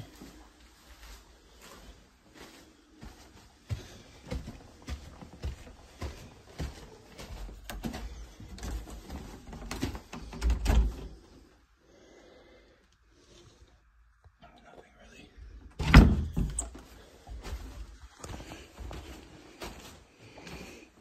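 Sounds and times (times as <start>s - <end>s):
footsteps on plastic-covered stairs: 0.0s - 11.4s, 15.8s - 21.0s
wooden door knocks and thuds: 15.7s - 16.6s.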